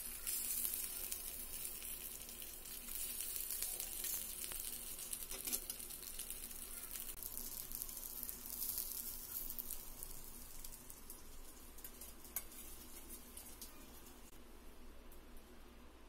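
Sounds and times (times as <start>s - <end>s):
chicken sizzling on a hot pan: 0.0s - 14.4s.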